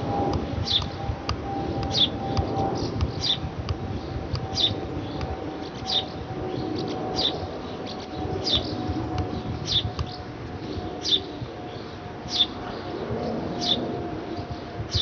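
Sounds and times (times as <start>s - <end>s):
jet airliner rumbling overhead: 0.0s - 15.0s
bird chirping: 4.0s - 10.2s.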